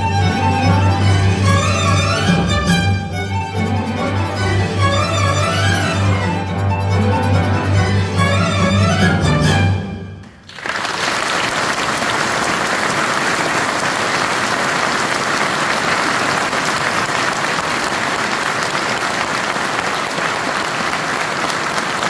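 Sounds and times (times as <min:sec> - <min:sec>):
large audience applauding: 0:10.2 - 0:22.0.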